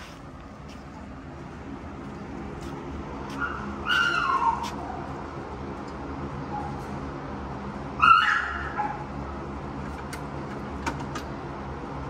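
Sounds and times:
puppy yelping: 3.3s - 5.2s, 8.0s - 9.1s
puppy crying softly: 3.4s - 5.1s.

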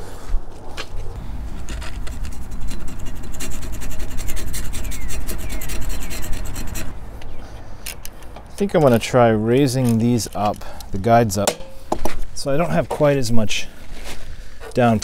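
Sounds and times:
metal rubbing and scraping: 0.8s - 9.0s.

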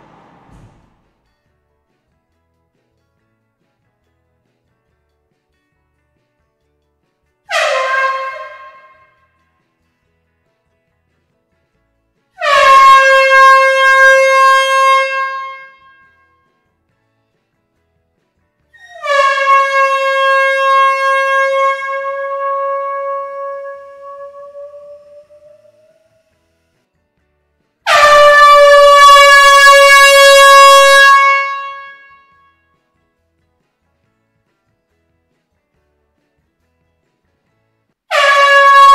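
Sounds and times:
air horn long note: 7.5s - 9.2s, 12.4s - 16.3s, 18.8s - 26.2s, 27.8s - 32.7s, 38.1s - 38.9s.

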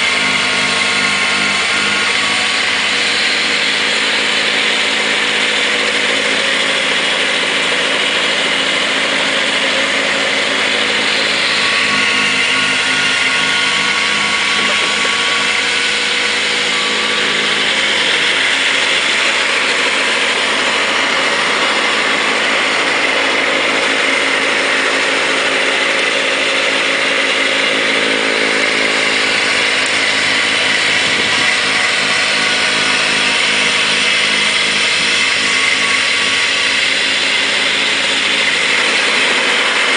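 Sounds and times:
diesel tractor engine running: 0.0s - 39.9s
snowblower throwing snow: 0.0s - 39.9s.

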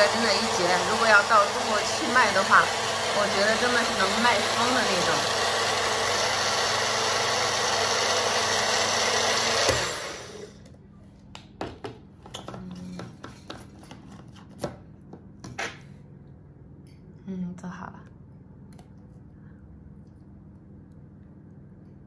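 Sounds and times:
blender running: 0.0s - 10.6s.

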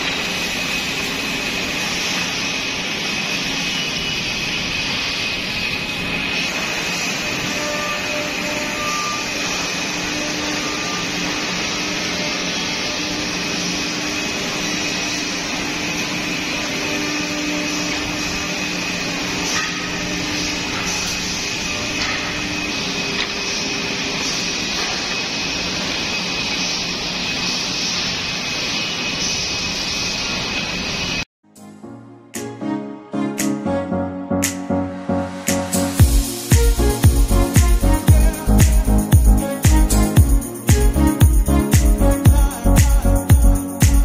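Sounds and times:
high machine whine: 0.0s - 31.3s, 34.8s - 44.0s
airy hiss of dust extraction: 35.8s - 42.8s
low machine hum: 36.0s - 44.0s.

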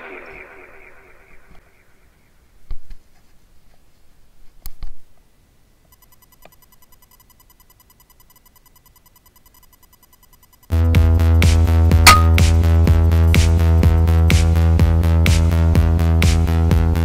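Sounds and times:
sharp clicks: 5.9s - 10.7s
faint even ticking: 5.9s - 10.8s.

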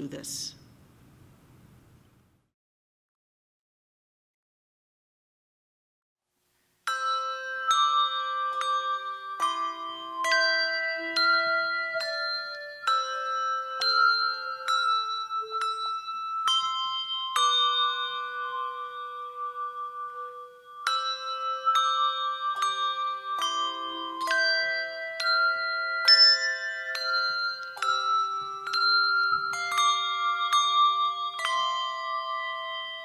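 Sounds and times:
handbells playing slow melody: 6.8s - 33.0s.

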